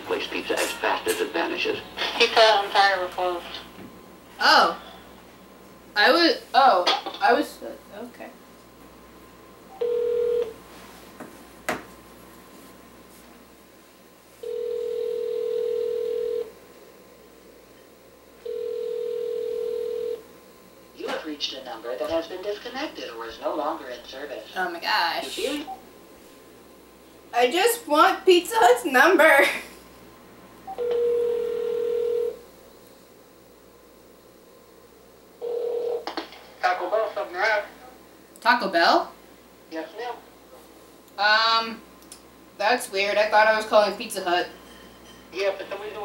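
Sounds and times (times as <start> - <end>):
telephone ringback tone: 9.7 - 10.6, 14.4 - 16.5, 18.4 - 20.2, 30.7 - 32.4, 35.4 - 36.0.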